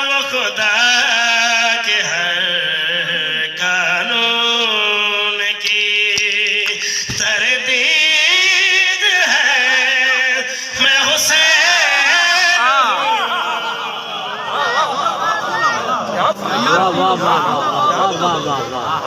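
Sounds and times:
man chanting into a microphone: 0.0s - 14.1s.

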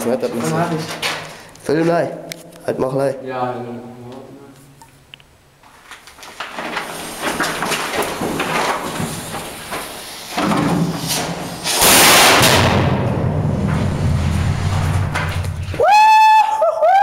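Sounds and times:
fuse crackling and hissing: 4.0s - 15.8s
firework rocket firing: 11.3s - 15.8s.

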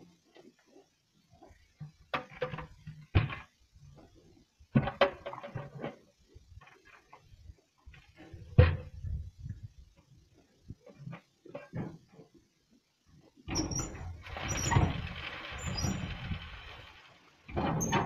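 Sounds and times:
bucket knocking and rattling: 4.7s - 6.0s.

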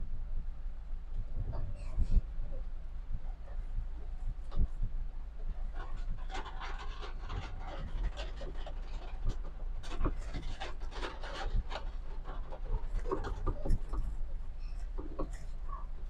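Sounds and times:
car interior rattling: 5.6s - 16.0s.

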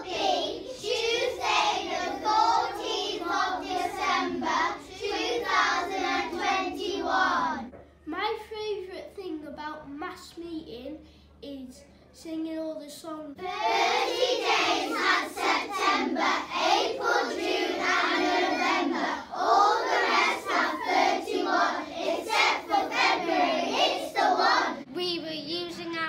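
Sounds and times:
children singing in unison: 0.0s - 7.7s, 13.4s - 24.8s.

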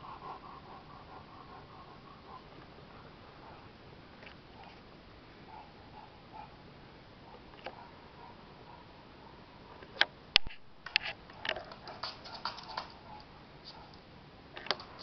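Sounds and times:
dog claws clicking on wooden floor: 11.3s - 13.3s.

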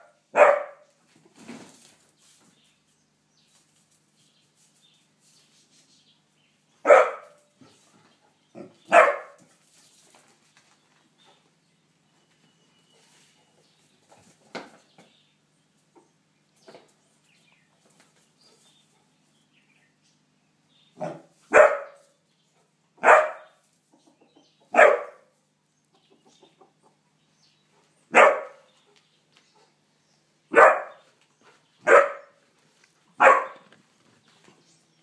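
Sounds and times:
puppy barking: 0.0s - 0.9s, 6.8s - 7.5s, 8.6s - 9.4s, 21.0s - 22.1s, 23.0s - 23.6s, 24.7s - 25.3s, 28.1s - 28.7s, 30.5s - 31.0s, 31.8s - 32.4s, 33.2s - 33.7s.

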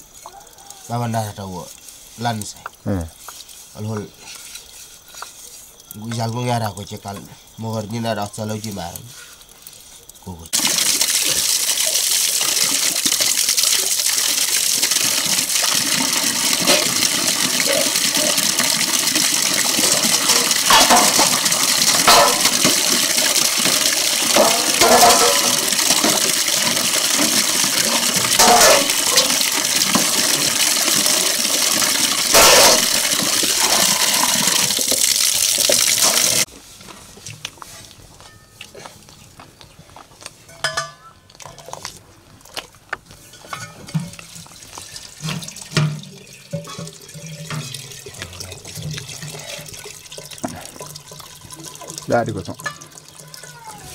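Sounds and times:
water splashing into metal wok: 8.7s - 36.5s, 43.4s - 53.9s
faint clinks of metal pots: 19.8s - 26.3s, 38.2s - 38.9s, 40.4s - 41.9s, 43.3s - 51.1s
metallic clanks of ladle and wok: 40.5s - 41.8s, 43.3s - 44.3s, 45.2s - 47.8s.

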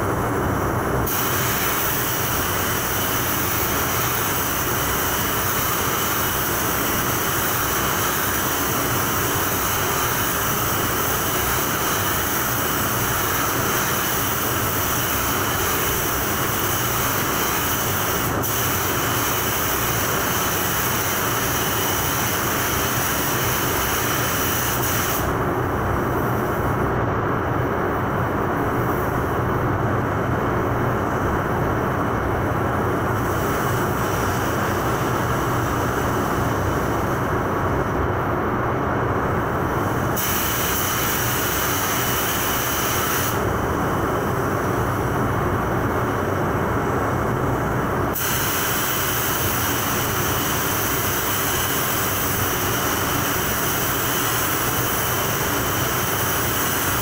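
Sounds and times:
ventilation rushing: 0.0s - 57.0s
spray gun hissing: 1.0s - 25.4s, 33.1s - 37.2s, 39.8s - 45.1s, 47.1s - 57.0s.

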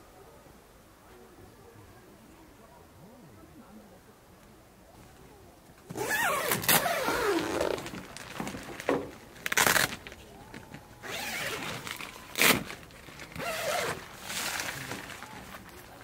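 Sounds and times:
tent fabric rustling: 5.9s - 10.2s, 11.0s - 16.0s.

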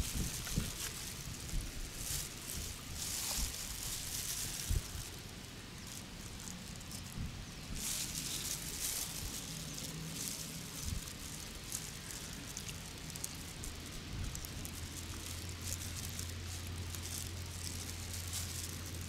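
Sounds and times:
plastic gloves crinkling: 0.0s - 19.0s
steady low hum: 0.0s - 19.0s
small pearls clicking: 8.0s - 19.0s.

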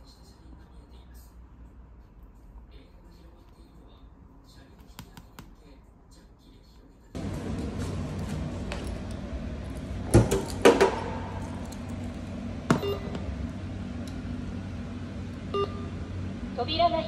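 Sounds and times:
steady low hum: 0.0s - 17.0s
touchscreen beep: 12.8s - 13.1s, 15.5s - 15.9s.

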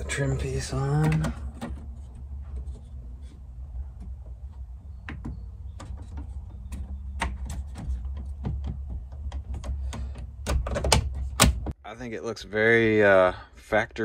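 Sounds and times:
plastic trim clicks and knocks: 4.0s - 11.7s.

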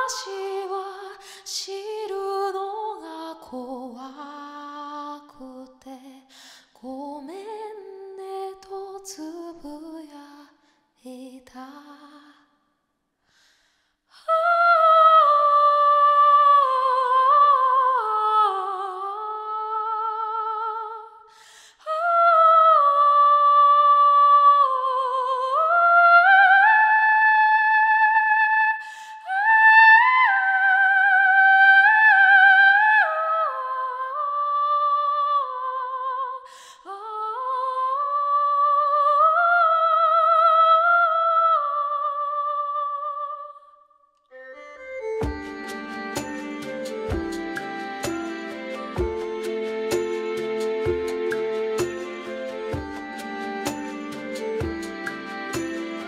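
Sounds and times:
woman singing wordless vocalise: 0.0s - 12.6s, 14.1s - 44.0s
singer breathing: 6.3s - 6.8s, 13.2s - 14.1s, 21.3s - 21.9s, 28.8s - 29.3s, 36.5s - 36.9s.

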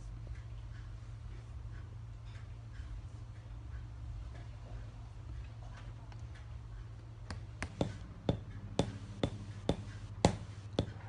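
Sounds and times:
wooden hammer tapping: 7.3s - 11.0s.

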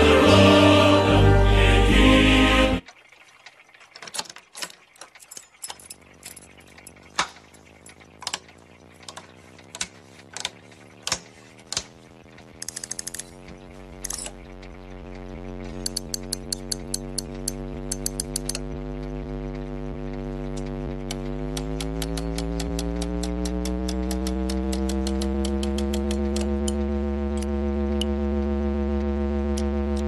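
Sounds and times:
choir music: 0.0s - 2.8s
low electrical hum: 5.2s - 30.0s
rattle of clicks: 12.5s - 14.4s, 15.7s - 18.6s, 20.5s - 26.8s
toggle switches clicking: 15.8s - 18.6s, 20.5s - 26.8s.

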